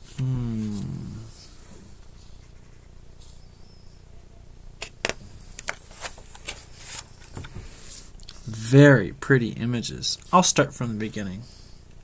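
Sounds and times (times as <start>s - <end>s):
faint low hum: 0.0s - 12.0s
picture book pages flipping: 4.8s - 8.1s.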